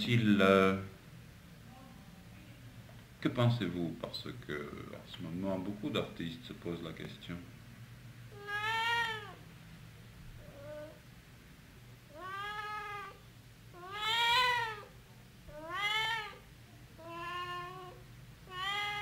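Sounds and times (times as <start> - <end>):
faint low hum: 0.0 - 19.0
cat meowing: 8.3 - 9.4, 10.4 - 11.0, 12.1 - 19.0.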